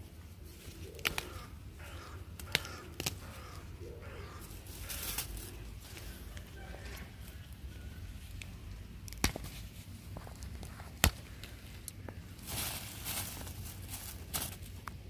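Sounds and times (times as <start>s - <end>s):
leaves rustling: 0.0s - 15.0s
bean stems snapping: 0.8s - 3.6s, 8.2s - 12.5s
plastic bag crinkling: 12.4s - 14.8s.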